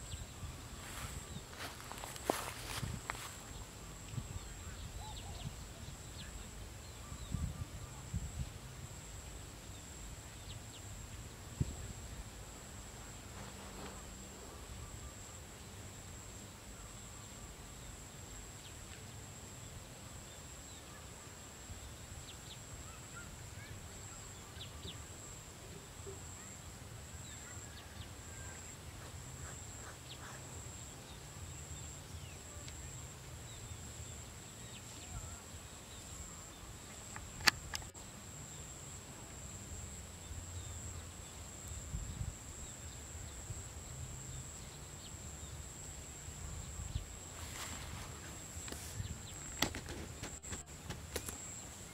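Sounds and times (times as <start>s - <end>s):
faint bird chirps: 0.0s - 8.5s, 20.3s - 39.0s
insect drone: 0.0s - 51.9s
sharp click: 37.1s - 38.0s.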